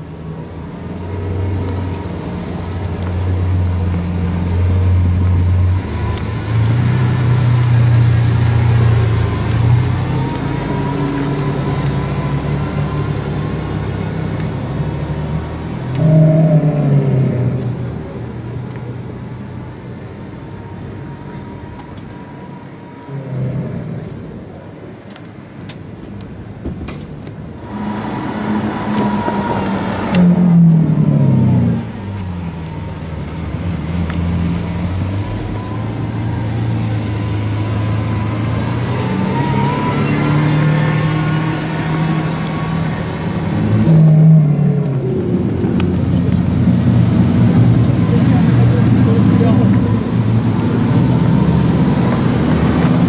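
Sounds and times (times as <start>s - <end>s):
sports car engine revving: 27.6s - 32.8s.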